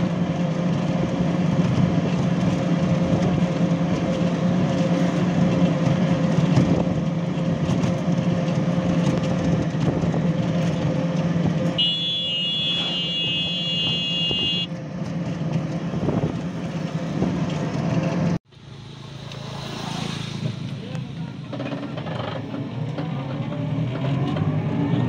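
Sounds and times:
vehicle engine and road noise: 0:00.0 - 0:25.0
high steady tone: 0:11.8 - 0:14.7.

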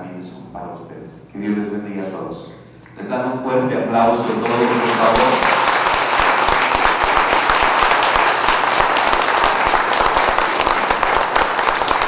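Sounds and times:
crowd applauding: 0:04.0 - 0:12.0.

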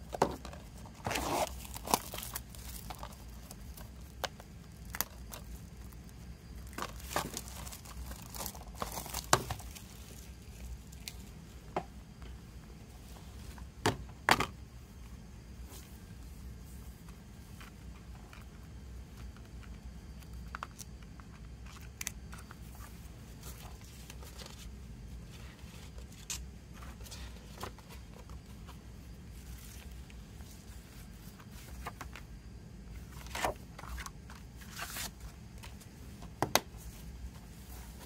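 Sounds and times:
steady low hum: 0:00.0 - 0:38.0
paper rustling: 0:33.0 - 0:35.9.

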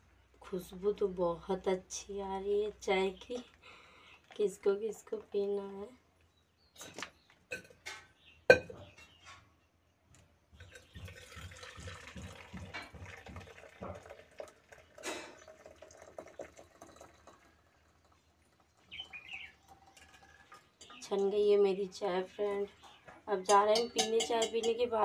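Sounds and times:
tea pouring through strainer: 0:10.9 - 0:20.8
metal clinks: 0:23.5 - 0:25.0.

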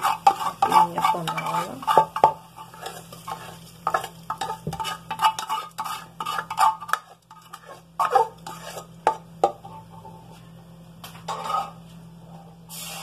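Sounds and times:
ladle scraping metal pan: 0:00.0 - 0:09.8, 0:11.3 - 0:11.8.

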